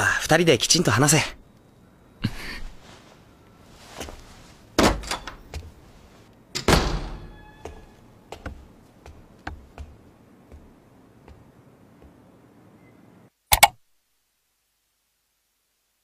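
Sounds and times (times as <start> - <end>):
soft footsteps: 2.7 - 4.7, 7.6 - 12.3
front door thudding shut: 6.6 - 7.3.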